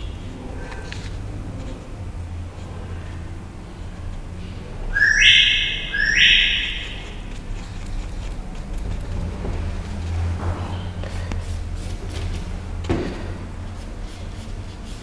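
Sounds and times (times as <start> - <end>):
steady low hum: 0.0 - 15.0
harsh bird calls: 5.0 - 7.2.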